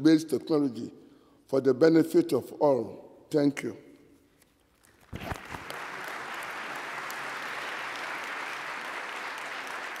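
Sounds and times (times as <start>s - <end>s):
audience applauding: 5.1s - 10.0s.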